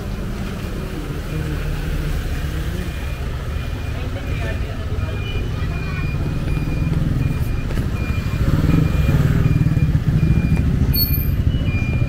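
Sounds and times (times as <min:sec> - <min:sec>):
vehicle engine rumbling: 0:00.0 - 0:12.0
short electronic beeps: 0:02.8 - 0:12.0.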